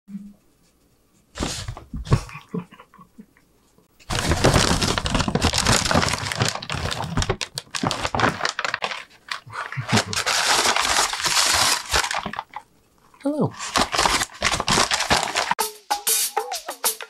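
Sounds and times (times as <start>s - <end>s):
paper bag crinkling: 4.0s - 12.6s, 13.5s - 15.6s.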